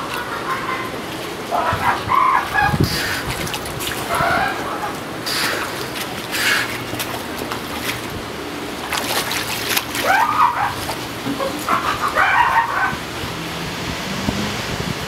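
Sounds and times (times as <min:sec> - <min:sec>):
seal calls: 0:00.0 - 0:07.0, 0:09.9 - 0:13.2
water splashing and sloshing: 0:00.0 - 0:15.0.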